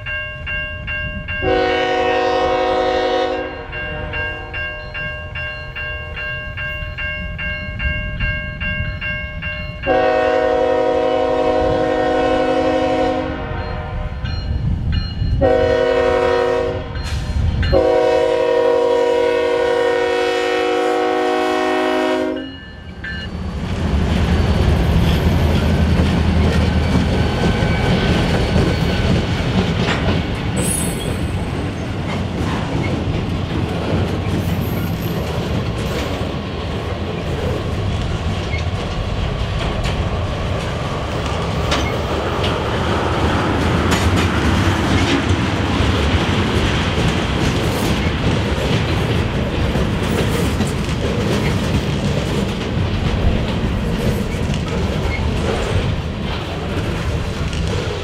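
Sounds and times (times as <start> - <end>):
crossing bell ringing: 0.0 - 11.4, 12.0 - 19.2, 21.4 - 23.6, 24.2 - 32.0
diesel locomotive rumbling: 0.0 - 58.0
locomotive air horn blasts: 1.4 - 4.6, 9.9 - 14.2, 15.4 - 17.0, 17.7 - 22.5.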